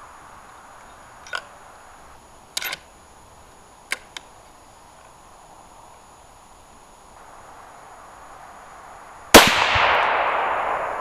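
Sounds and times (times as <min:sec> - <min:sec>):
rifle shot: 0:09.3 - 0:11.0
long echo: 0:09.4 - 0:11.0.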